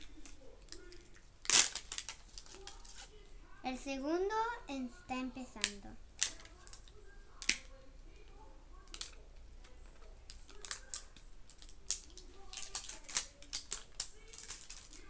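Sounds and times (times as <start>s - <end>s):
plastic wrapping crinkling: 0.0s - 3.2s, 8.9s - 15.0s.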